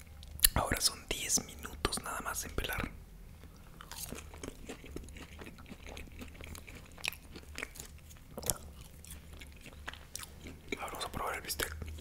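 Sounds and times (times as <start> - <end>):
chewing crunchy food: 2.6 - 12.0.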